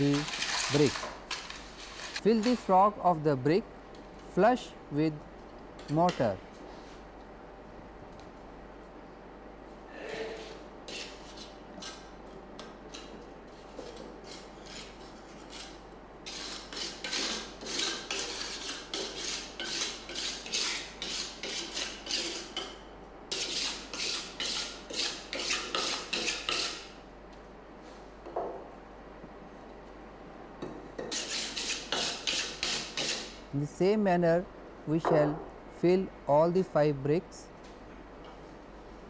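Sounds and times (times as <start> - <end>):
steel trowel scraping mortar: 13.8 - 22.5, 31.1 - 33.3.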